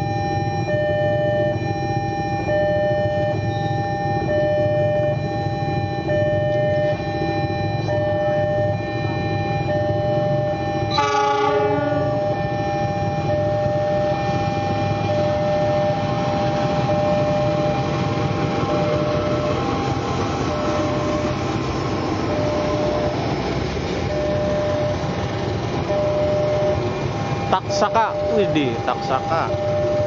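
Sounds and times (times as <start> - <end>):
locomotive and wheels rumbling: 0.0 - 30.0
train horn: 10.9 - 12.4
steady high tones: 14.7 - 30.0.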